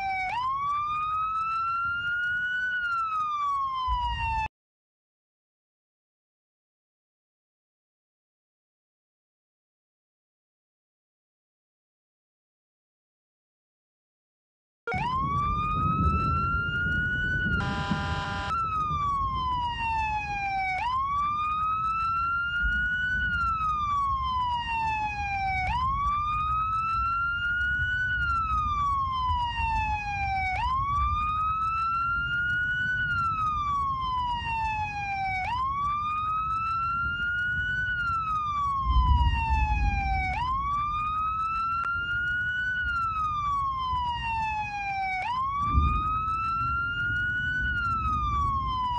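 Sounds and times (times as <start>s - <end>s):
siren wailing: 0.0s - 4.5s, 14.9s - 48.9s.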